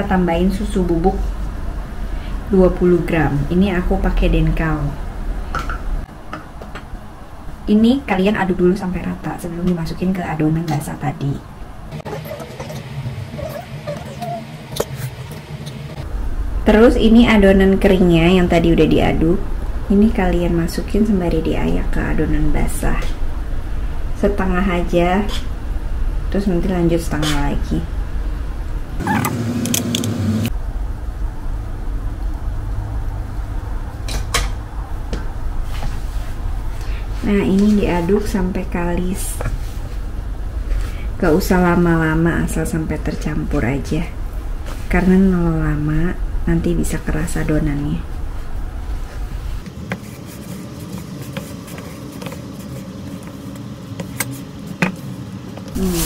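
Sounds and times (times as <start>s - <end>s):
steady low hum: 0.0s - 56.0s
spatula scraping plastic bowl: 49.9s - 55.0s.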